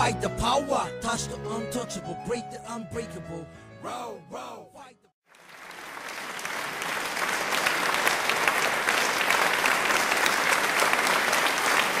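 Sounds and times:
crowd applause: 0:05.3 - 0:12.0.

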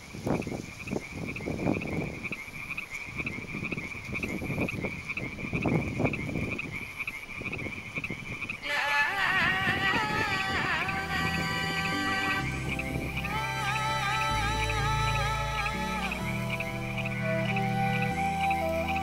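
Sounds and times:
frog croaking: 0:00.0 - 0:19.0
high pulsing trill: 0:10.8 - 0:19.0.

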